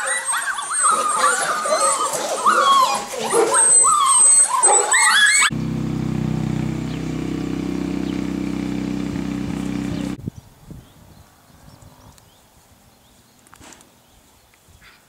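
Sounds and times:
puppies whimpering and yipping: 0:00.0 - 0:05.5
steady low drone: 0:05.5 - 0:10.2.

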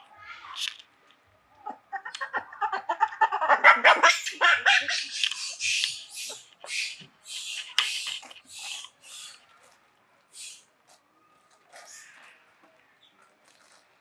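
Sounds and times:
monkeys squealing and shrieking: 0:03.7 - 0:09.4, 0:10.4 - 0:10.6.

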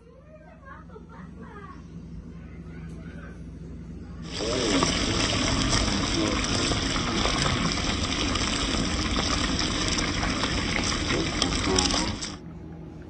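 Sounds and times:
fish sizzling in hot oil: 0:04.2 - 0:12.4.

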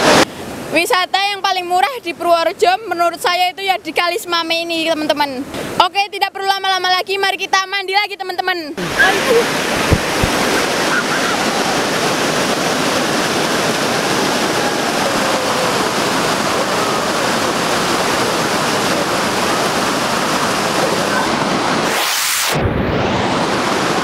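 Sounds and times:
river water rushing over rocks: 0:00.0 - 0:00.7, 0:08.8 - 0:22.0.

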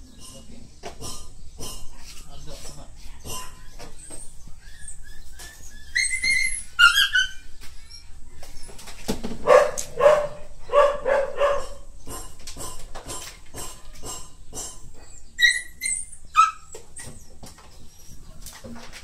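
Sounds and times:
dog whining: 0:03.3 - 0:08.9, 0:15.0 - 0:18.3
dog barking: 0:09.4 - 0:11.9.

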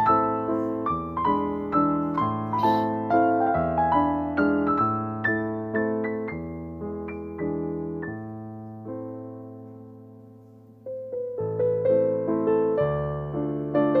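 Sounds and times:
slow piano music: 0:00.0 - 0:14.0.

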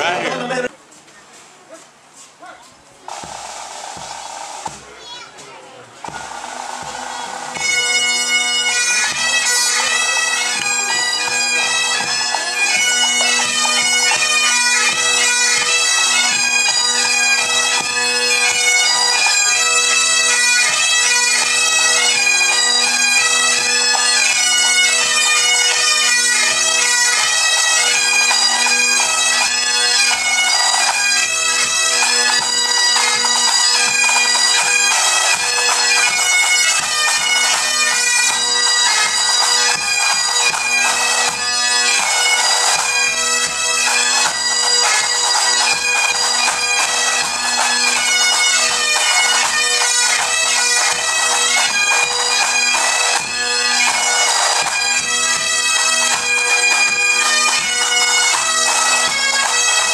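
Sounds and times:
snare and bass drums: 0:03.1 - 0:05.0, 0:06.0 - 0:07.6
bagpipes playing over drones: 0:06.0 - 0:59.9.

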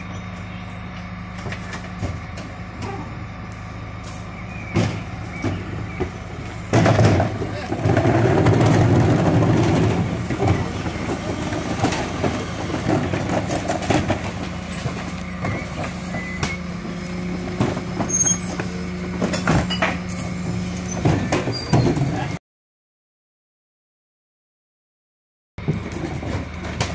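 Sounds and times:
refuse truck mechanical hum: 0:00.0 - 0:22.4, 0:25.6 - 0:26.9
bin clanking and knocking: 0:06.7 - 0:15.6, 0:19.2 - 0:20.0, 0:20.9 - 0:22.3.

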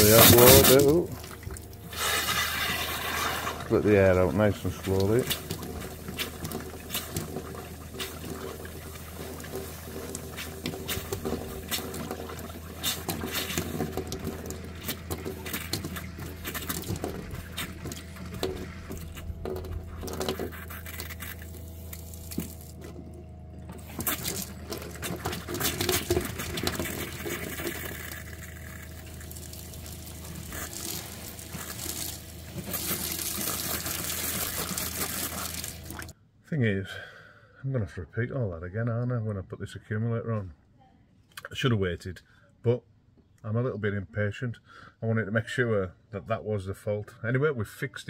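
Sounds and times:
water pump humming: 0:00.0 - 0:36.2
tap water splashing into steel sink: 0:04.5 - 0:20.4, 0:28.8 - 0:36.1.

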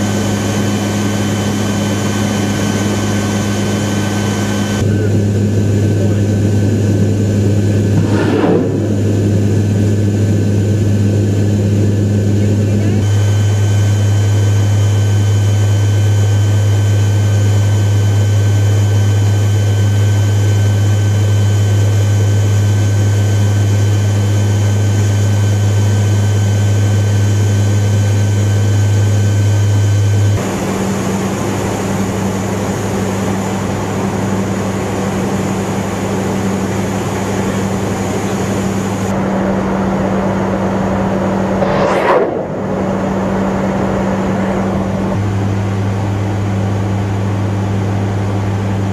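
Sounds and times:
turboprop engine drone in cabin: 0:00.0 - 0:48.9
short whoosh: 0:07.8 - 0:10.3, 0:41.4 - 0:45.1.

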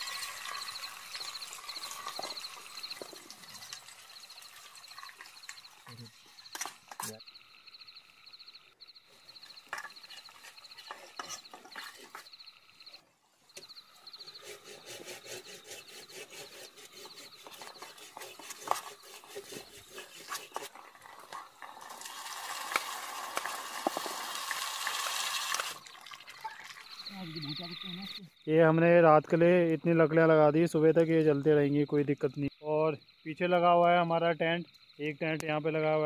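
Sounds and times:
campfire crackling and popping: 0:00.0 - 0:07.2, 0:19.6 - 0:27.1.

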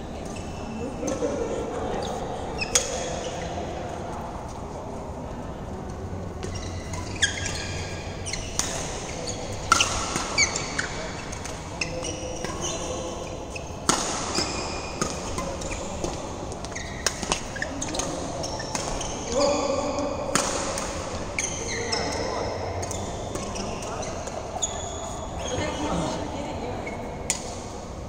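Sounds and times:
shoes squeaking on court: 0:06.4 - 0:19.3, 0:21.4 - 0:26.2
rackets hitting shuttlecock: 0:08.4 - 0:11.6, 0:13.8 - 0:19.2, 0:20.3 - 0:21.5.

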